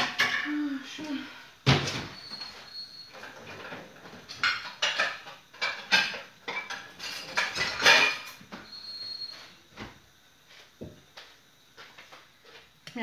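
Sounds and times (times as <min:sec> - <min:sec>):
metal pans and lids clattering: 0:00.0 - 0:00.6, 0:01.7 - 0:08.9.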